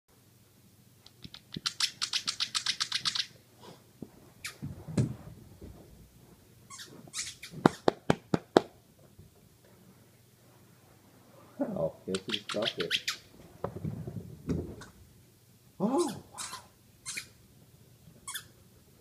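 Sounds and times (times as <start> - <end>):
sharp squeaky clicks: 1.1 - 3.3, 6.7 - 8.0, 12.1 - 13.2, 16.0 - 17.3.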